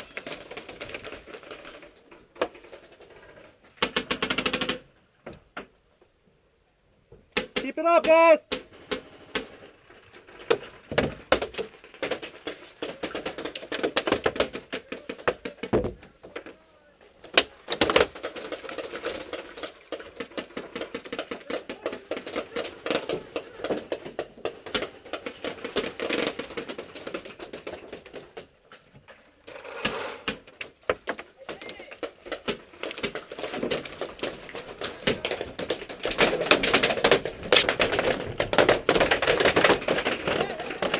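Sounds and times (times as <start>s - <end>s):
paintballs smacking wooden walls: 0.0s - 5.8s, 7.1s - 40.9s
loud pops: 29.5s - 40.9s
paintball markers firing: 29.6s - 40.9s.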